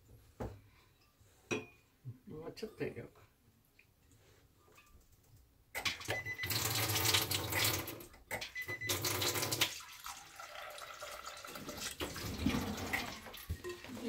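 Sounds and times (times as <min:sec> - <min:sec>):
tap water splashing into metal sink: 0:05.8 - 0:07.9
thin water stream filling pot: 0:06.0 - 0:08.0, 0:08.7 - 0:14.0.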